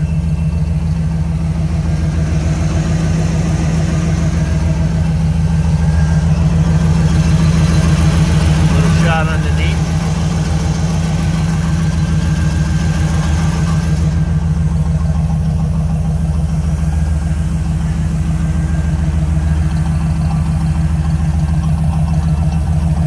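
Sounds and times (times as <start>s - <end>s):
car engine idling loudly: 0.0s - 23.0s.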